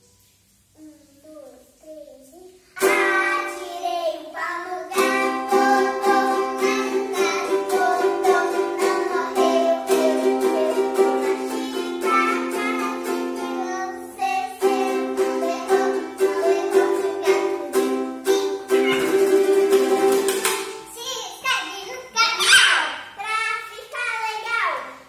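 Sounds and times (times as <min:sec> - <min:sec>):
children singing: 0:02.8 - 0:20.2
ukulele strumming: 0:02.8 - 0:21.1.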